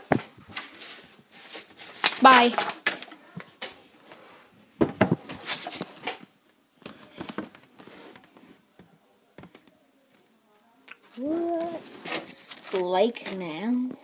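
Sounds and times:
paper rustling and tapping: 0:00.0 - 0:03.8.

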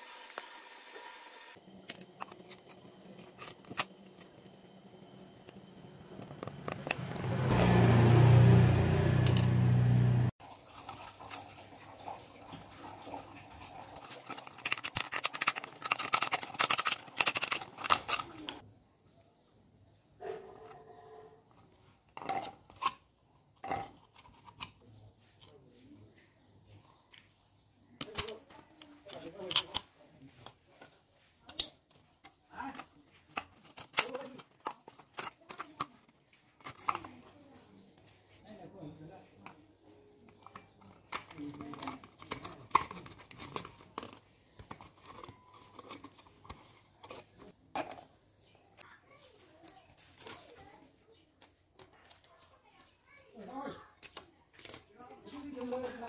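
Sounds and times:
thin plastic crinkling: 0:10.7 - 0:18.6, 0:40.3 - 0:48.1
plastic bottle crackling: 0:13.6 - 0:18.6.

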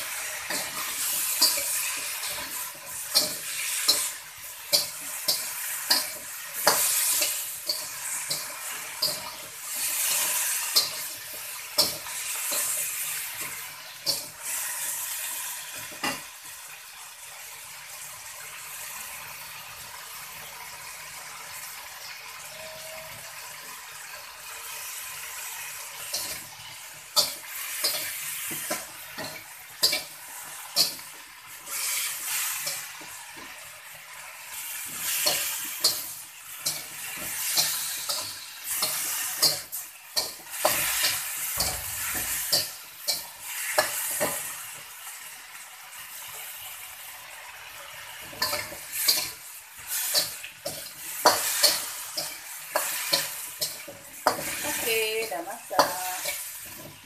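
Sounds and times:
metal spatula scraping wok: 0:00.0 - 0:16.2, 0:24.6 - 0:44.7, 0:47.6 - 0:57.0
oil sizzling in wok: 0:00.0 - 0:57.0.

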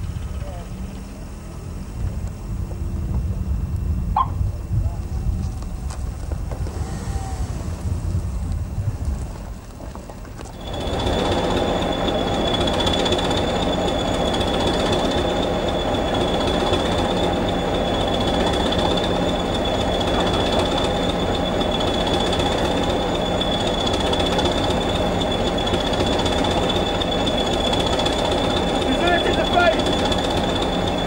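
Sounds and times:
diesel locomotive engine running: 0:00.0 - 0:31.0
high whine: 0:10.4 - 0:31.0.

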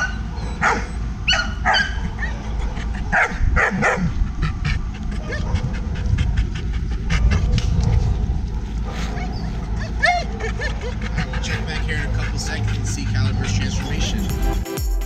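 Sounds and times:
dog barking: 0:00.0 - 0:04.2, 0:05.2 - 0:05.9, 0:08.8 - 0:13.6
dog yelping: 0:00.0 - 0:13.8.

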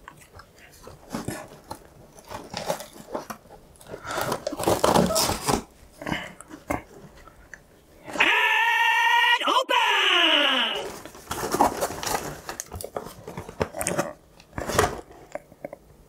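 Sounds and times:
cardboard flaps rustling: 0:00.8 - 0:06.0, 0:10.8 - 0:15.3
scissors cutting cardboard: 0:01.0 - 0:05.7.

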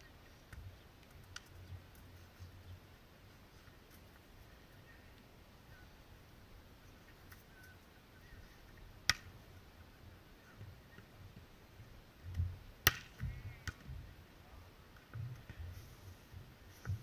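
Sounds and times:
wind rumbling on microphone: 0:08.8 - 0:17.0
volleyball being hit: 0:09.0 - 0:09.3, 0:12.8 - 0:13.8.

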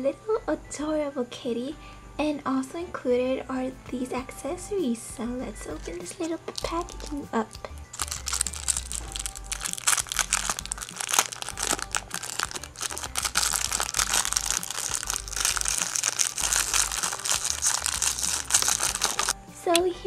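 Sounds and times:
plastic bag crinkling: 0:05.8 - 0:19.4.

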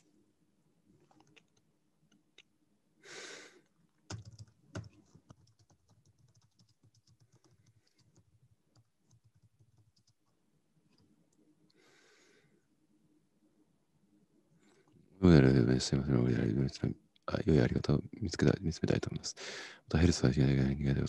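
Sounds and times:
typing on a keyboard: 0:04.1 - 0:11.0.

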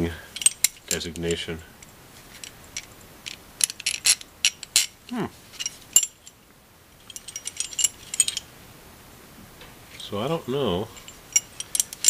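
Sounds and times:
metal bolts clinking: 0:00.3 - 0:06.4, 0:07.0 - 0:08.5, 0:10.9 - 0:12.0.

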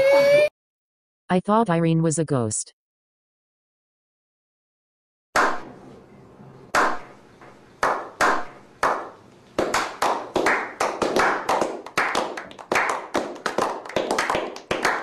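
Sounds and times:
people clapping: 0:07.8 - 0:15.0.

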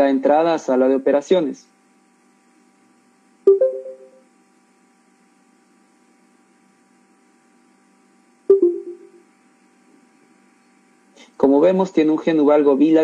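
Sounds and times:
faint steady hum: 0:00.0 - 0:13.0
two-tone notification chime: 0:03.5 - 0:04.2, 0:08.5 - 0:09.2.

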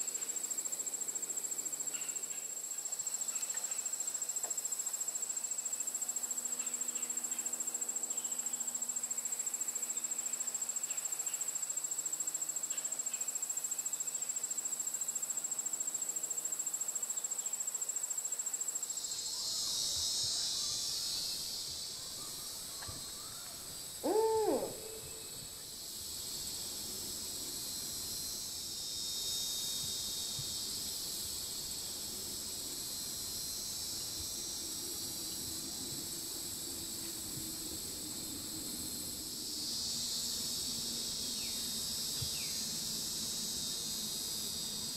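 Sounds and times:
high insect trill: 0:00.0 - 0:44.9
hissing insect chorus: 0:00.0 - 0:44.9
owl hoot: 0:22.1 - 0:25.6.

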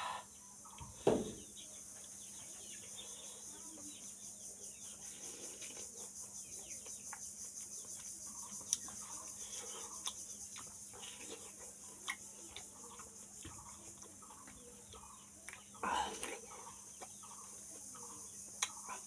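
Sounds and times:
man chewing with crunching: 0:05.0 - 0:19.0.

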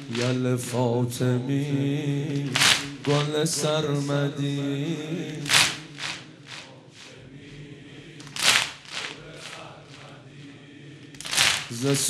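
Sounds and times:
people slapping chests: 0:00.0 - 0:00.8, 0:02.3 - 0:03.7, 0:05.3 - 0:07.1, 0:08.2 - 0:10.2, 0:11.1 - 0:12.0.

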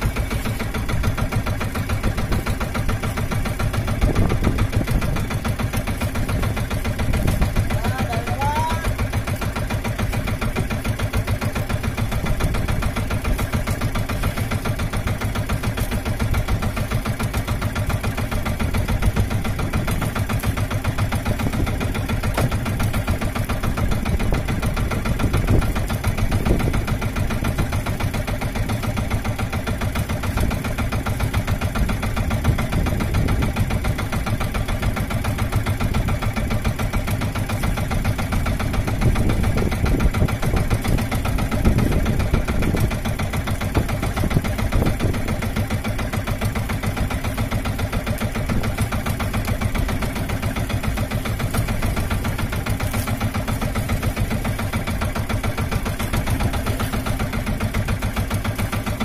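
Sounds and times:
boat engine puttering: 0:00.0 - 0:59.0.

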